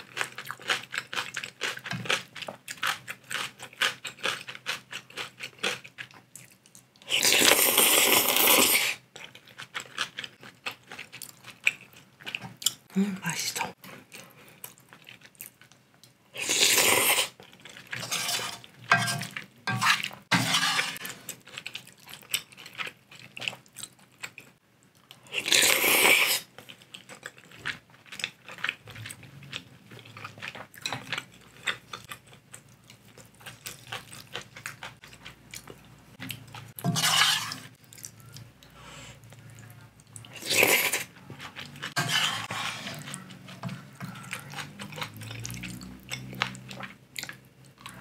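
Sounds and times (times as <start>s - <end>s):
chewing: 0.0s - 12.9s, 13.7s - 48.0s
loud noodle slurps: 7.1s - 9.0s, 16.4s - 17.4s, 25.4s - 26.5s.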